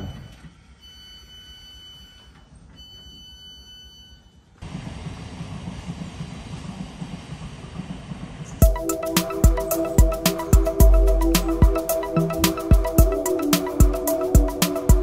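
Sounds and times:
high-pitched train door tone: 0.0s - 5.3s.

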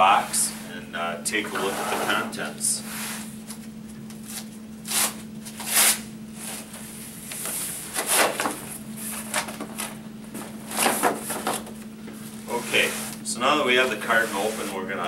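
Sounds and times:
low electrical hum: 0.0s - 15.0s
cardboard carton scraping and rustling: 1.5s - 2.4s, 12.4s - 13.2s, 13.8s - 15.0s.

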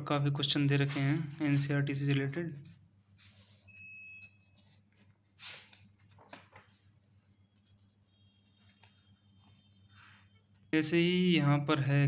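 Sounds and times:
book pages turning: 0.8s - 1.7s, 2.6s - 3.8s, 4.5s - 10.7s.

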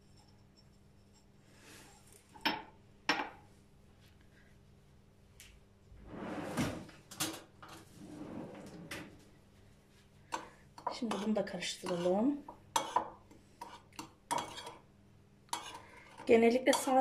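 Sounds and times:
kitchenware clattering: 10.4s - 14.8s.

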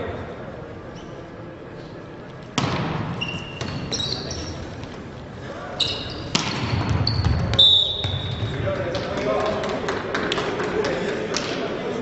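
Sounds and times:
shoes squeaking on floor: 0.9s - 1.3s, 3.1s - 5.1s, 5.7s - 8.5s
volleyball being hit: 2.6s - 3.9s, 6.3s - 9.2s.

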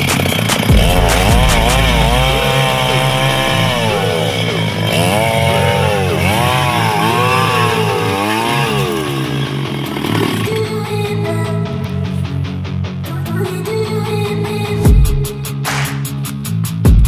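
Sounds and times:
chainsaw cutting a log: 0.0s - 11.4s.

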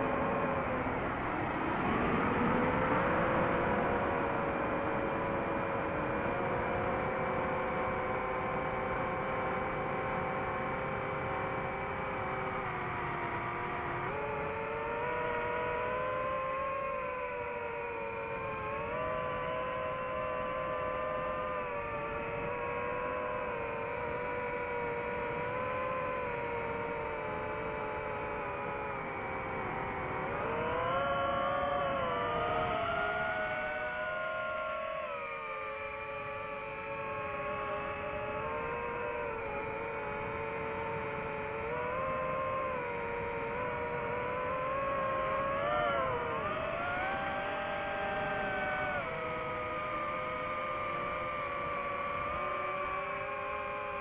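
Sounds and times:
drone motors whining: 1.9s - 54.0s.

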